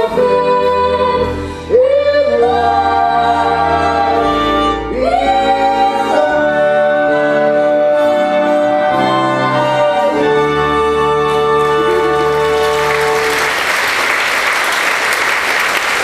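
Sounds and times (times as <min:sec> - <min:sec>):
audience applause: 0:11.6 - 0:16.0.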